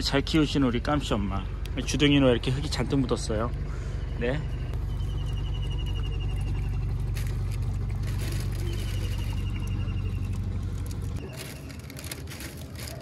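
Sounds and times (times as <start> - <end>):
low rumble: 3.7 - 13.0
high fast-pulsed trilling call: 8.4 - 10.3.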